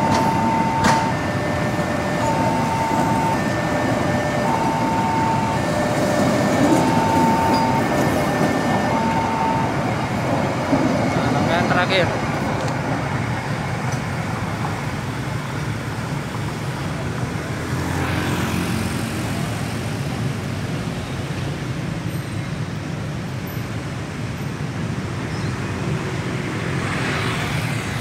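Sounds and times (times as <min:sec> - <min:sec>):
low rumble of road traffic: 0:00.0 - 0:28.0.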